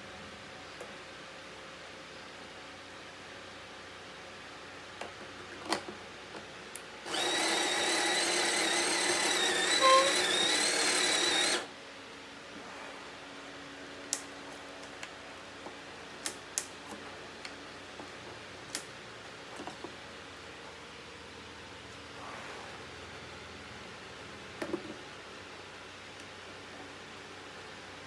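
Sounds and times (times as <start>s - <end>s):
coffee grinder motor whine: 7.1s - 11.7s.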